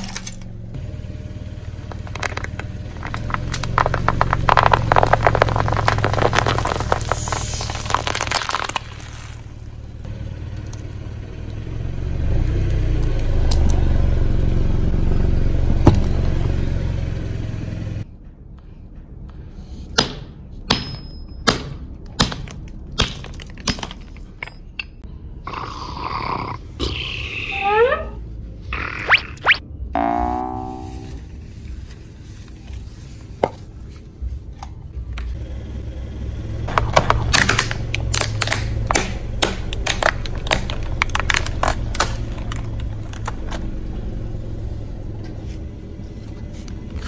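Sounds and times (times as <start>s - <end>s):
car rolling rumble: 0.0s - 18.1s, 30.6s - 47.0s
bubble wrap popping under tyre: 1.7s - 10.8s, 36.7s - 43.4s
sharp crack: 1.8s - 10.8s, 36.7s - 43.4s
cartoon sliding pitch sound effect: 28.8s - 31.3s.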